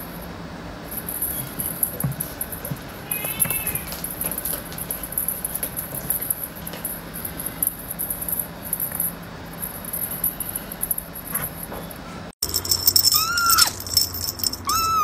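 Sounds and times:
small bell jingling: 0:00.9 - 0:11.7, 0:12.4 - 0:15.0
kitten meowing: 0:03.0 - 0:04.0, 0:13.0 - 0:13.8, 0:14.6 - 0:15.0.

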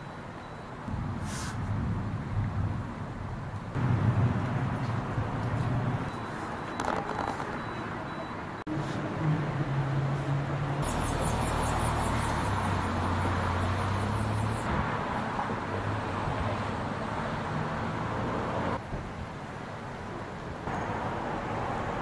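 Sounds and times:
tyre and road noise: 0:00.0 - 0:22.0
car engine hum: 0:09.1 - 0:18.8
high pulsing buzz: 0:10.8 - 0:14.7.

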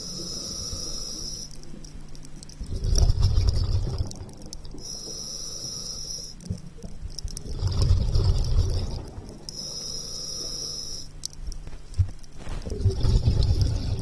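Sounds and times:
regulator hissing inhale: 0:00.0 - 0:01.6, 0:04.8 - 0:06.4, 0:09.5 - 0:11.1
exhale bubbling underwater: 0:02.6 - 0:04.9, 0:06.9 - 0:09.5, 0:12.7 - 0:14.0.

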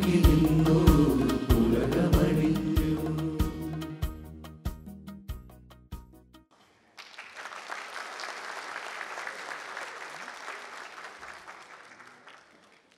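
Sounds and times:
audience applauding: 0:06.6 - 0:12.9.

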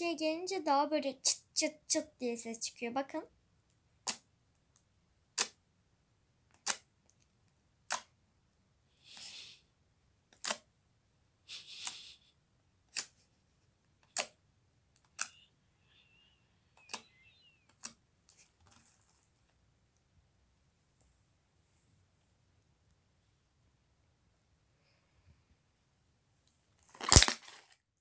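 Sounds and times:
crackling slime squelches: 0:26.8 - 0:27.8.

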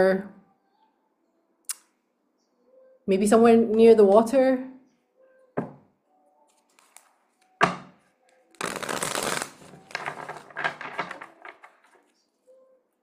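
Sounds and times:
cards being shuffled: 0:06.5 - 0:07.6, 0:08.3 - 0:12.1
cards flicking and rustling: 0:06.5 - 0:12.1.

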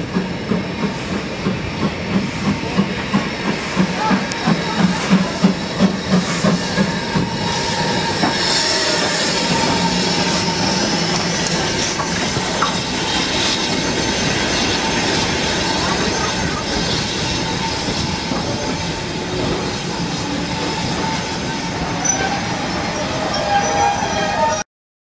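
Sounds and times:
rail joint clicks: 0:00.0 - 0:07.5, 0:08.1 - 0:15.2
steam locomotive exhaust beats: 0:00.0 - 0:21.9
train wheels rumbling on rail: 0:00.0 - 0:24.6
wheels squealing: 0:05.6 - 0:24.6.

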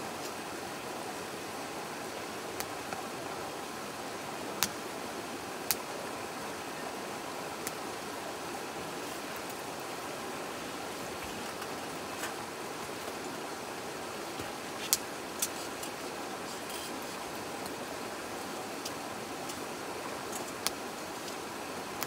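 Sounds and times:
flowing stream: 0:00.0 - 0:22.0
wood fire crackling: 0:05.6 - 0:05.9, 0:10.5 - 0:22.0.

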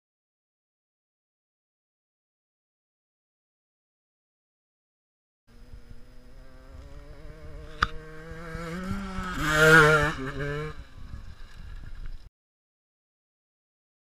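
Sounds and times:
dirt bike engine passing: 0:05.5 - 0:12.3.

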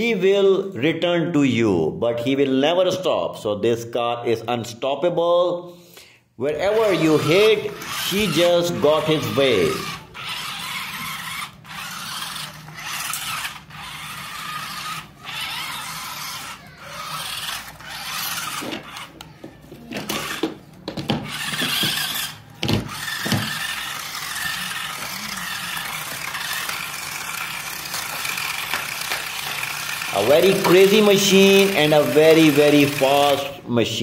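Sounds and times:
rc car motors whirring: 0:06.5 - 0:33.6
thumps: 0:18.5 - 0:23.7.

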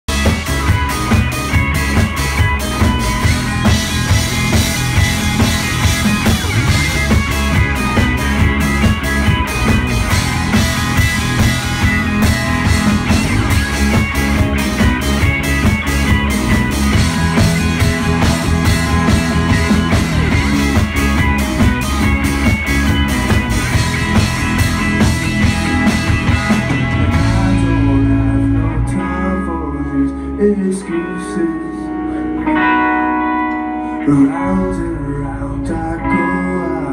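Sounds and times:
electric bass: 0:00.0 - 0:36.9
drum kit beat: 0:00.1 - 0:28.2
electric guitars: 0:00.1 - 0:36.9.

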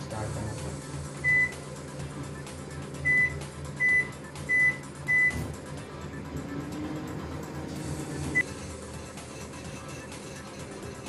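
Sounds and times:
microwave keypad beeps: 0:01.2 - 0:01.6, 0:03.0 - 0:05.4.

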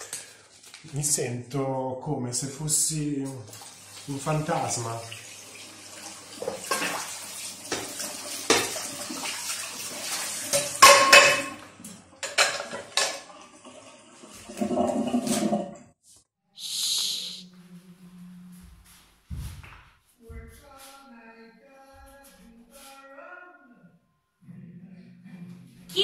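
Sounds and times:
tap water running: 0:03.0 - 0:15.8
dishes and pots clattering: 0:06.4 - 0:08.9, 0:10.4 - 0:13.4, 0:14.5 - 0:15.8
metal pan clanging: 0:10.5 - 0:13.3
short hiss: 0:16.6 - 0:17.4.

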